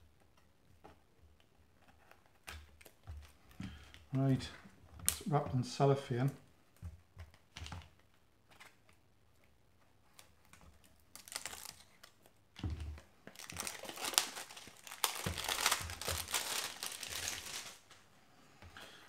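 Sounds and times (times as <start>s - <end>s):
cellophane crinkling and crackling: 7.3s - 18.0s
knife slitting cellophane: 11.1s - 12.2s, 13.4s - 17.8s.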